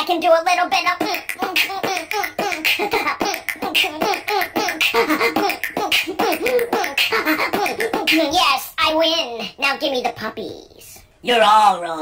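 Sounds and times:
person beatboxing: 0.8 - 8.4.

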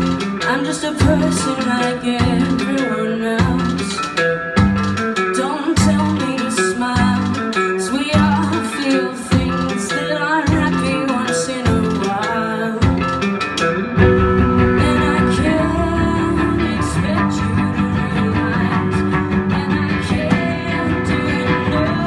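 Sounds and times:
live rock band playing: 0.0 - 22.0
repeating bass line: 14.0 - 22.0.

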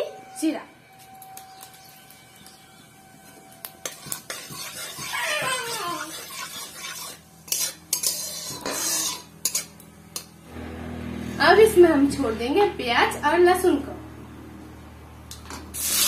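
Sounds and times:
spatula scraping a metal pan: 3.8 - 9.7
spices sizzling in oil: 6.0 - 9.8.

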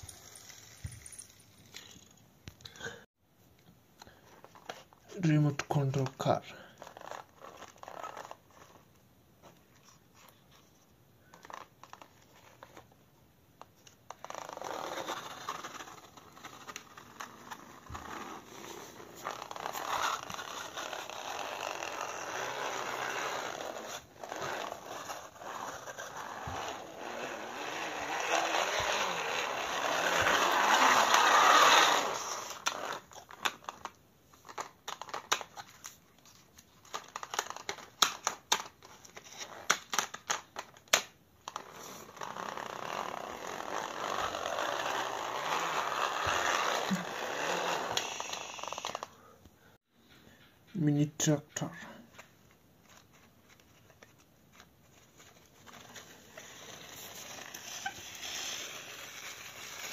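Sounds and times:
toy car wheels and gears rasping: 0.0 - 2.1, 14.4 - 33.0, 42.6 - 49.1, 55.7 - 59.9.

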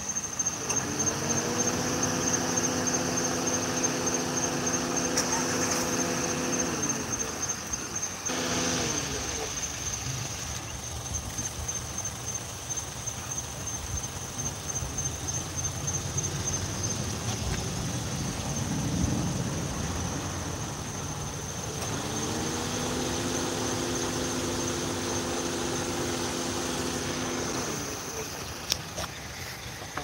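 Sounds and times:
insects trilling: 0.0 - 30.0
steady multi-pitched whine: 0.0 - 30.0.

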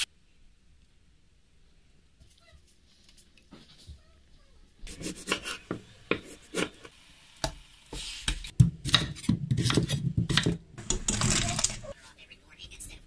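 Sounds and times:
kitchen knocks and scrapes: 7.9 - 12.0
knife chopping on wooden board: 8.6 - 10.6.

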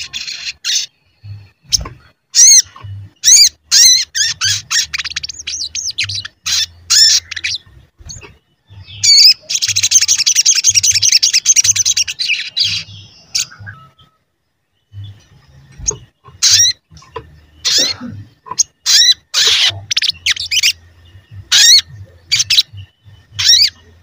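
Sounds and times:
bird chirping and trilling: 0.0 - 24.0.

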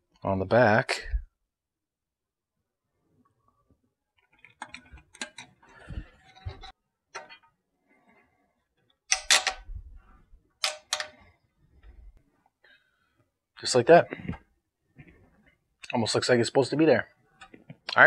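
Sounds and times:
plastic bracket clicking: 10.6 - 11.2.

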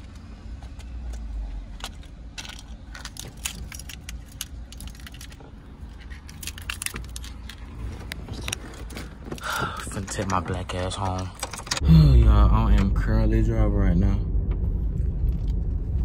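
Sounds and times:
low steady rumble: 0.0 - 16.0
car keys jangling: 0.6 - 11.8.

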